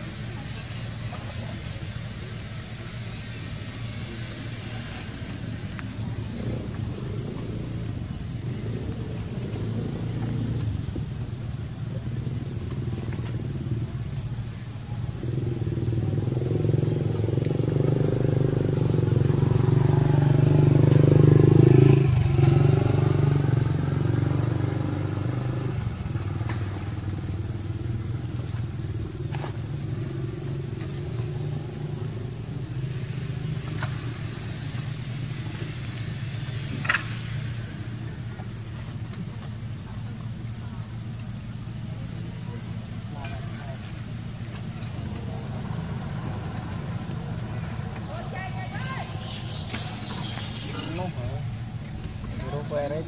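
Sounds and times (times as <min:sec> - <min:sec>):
vehicle engine passing: 0:15.1 - 0:38.8, 0:41.9 - 0:53.0.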